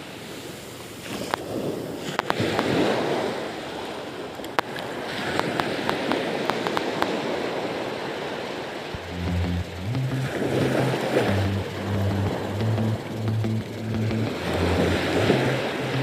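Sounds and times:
small waves breaking on beach: 0.0 - 8.9
music with low beat: 9.0 - 16.0.

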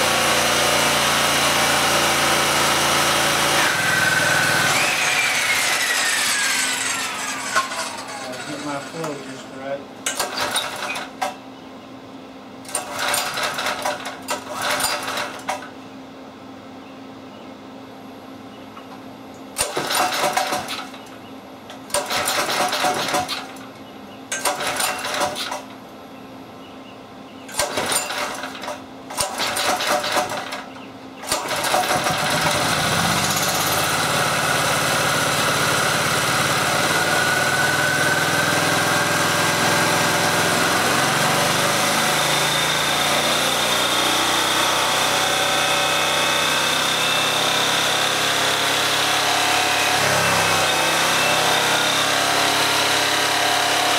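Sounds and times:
generator engine running: 0.0 - 10.8, 27.5 - 53.9
generator engine cranking: 0.0 - 11.4, 12.7 - 15.8, 19.6 - 21.2, 21.8 - 25.8, 27.5 - 53.9.

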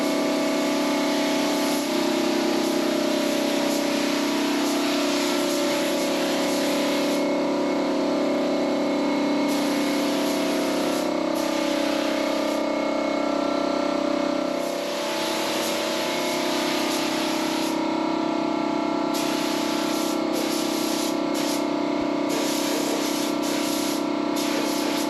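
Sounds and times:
paint spray gun hissing: 0.0 - 7.3, 9.4 - 12.7, 14.5 - 17.9, 19.1 - 21.7, 22.3 - 25.0.

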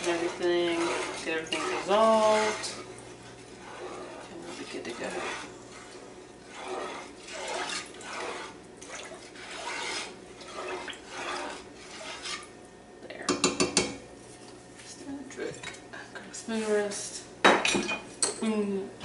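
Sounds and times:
wooden spoon stirring liquid in pot: 0.0 - 17.3
spoon knocking against pot: 13.3 - 14.0.

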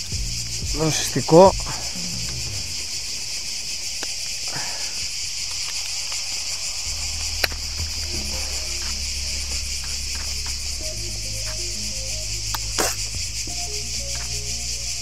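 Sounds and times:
low background music: 0.0 - 3.0, 6.9 - 15.0
cicadas chorus: 0.0 - 15.0.

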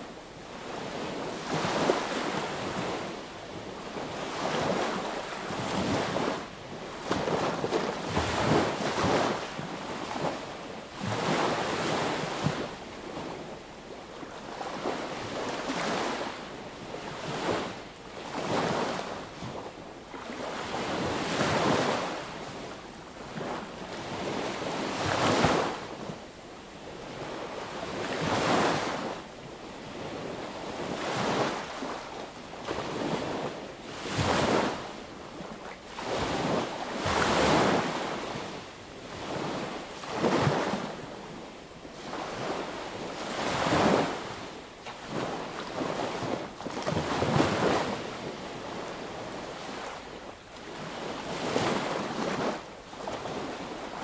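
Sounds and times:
small sea waves breaking: 35.9 - 41.0, 42.0 - 50.0, 50.6 - 54.0.

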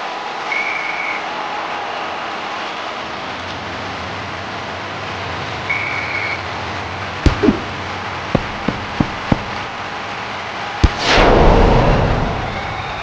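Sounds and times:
ball bouncing on gym floor: 7.3 - 7.8, 8.4 - 9.7
hard ball hit with whoosh: 7.3 - 7.8, 8.4 - 9.7, 10.8 - 12.8.

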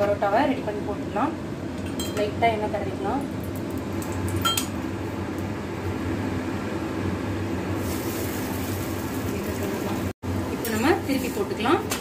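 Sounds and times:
dough sizzling on hot pan: 7.7 - 10.0.

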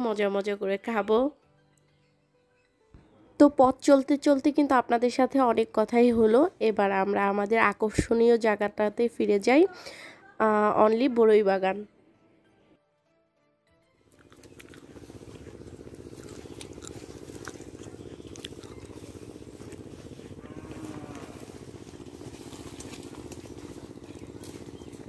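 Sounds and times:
small engine chugging: 14.0 - 25.0.

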